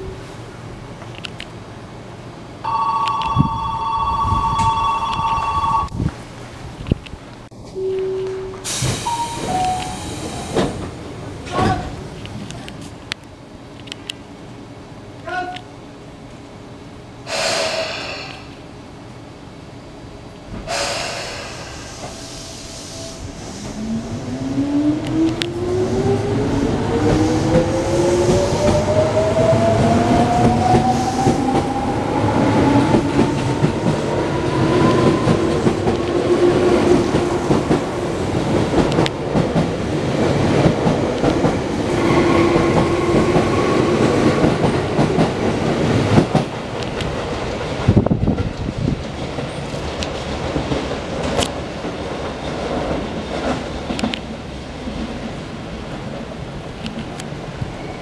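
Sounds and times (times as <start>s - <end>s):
wheels rumbling on rails: 23.2s - 58.0s.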